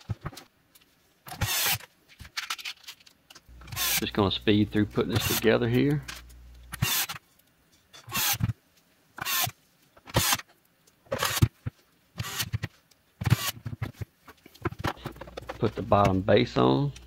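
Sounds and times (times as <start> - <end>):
electric screwdriver running: 1.4 - 1.8, 3.6 - 4.1, 5.1 - 5.5, 6.8 - 7.2, 12.2 - 12.5, 13.2 - 13.6.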